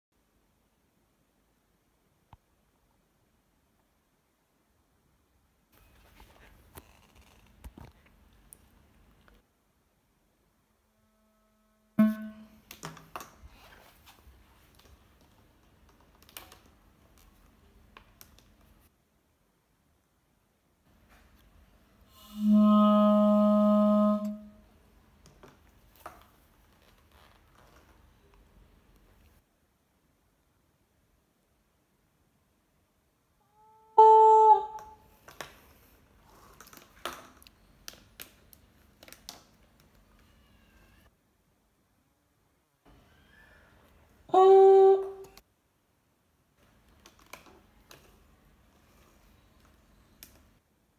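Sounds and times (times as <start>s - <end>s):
pipe horn note: 10.8s - 12.7s, 22.2s - 24.7s, 33.4s - 35.0s, 44.3s - 45.4s
loud pitched note from pipe: 11.0s - 12.7s.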